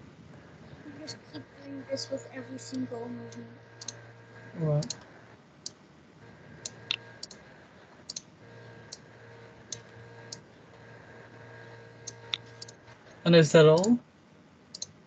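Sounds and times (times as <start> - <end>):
faint steady hum: 0.0 - 15.0
computer mouse clicking: 3.3 - 4.0, 6.6 - 10.8, 12.0 - 12.8, 14.7 - 15.0.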